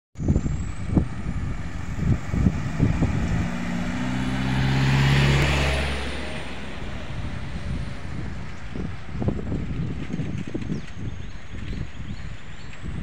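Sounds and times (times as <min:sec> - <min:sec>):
car engine hum and tyre noise: 0:00.2 - 0:13.0.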